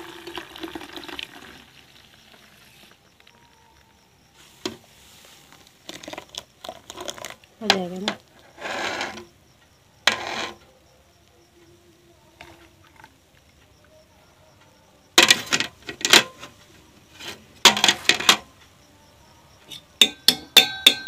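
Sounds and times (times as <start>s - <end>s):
milk pouring: 0.0s - 3.1s, 5.6s - 7.5s
metal mug clinking against bucket: 19.7s - 21.0s.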